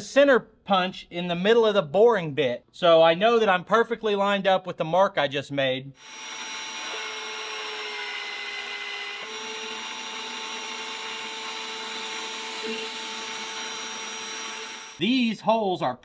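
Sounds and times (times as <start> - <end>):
magnetic drill boring steel: 6.0 - 15.0.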